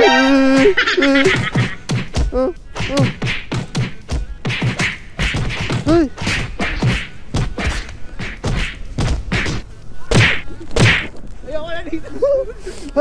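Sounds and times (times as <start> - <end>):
rising and falling tone: 0.0 - 0.8
cartoon punch whacks and thuds: 1.4 - 11.1.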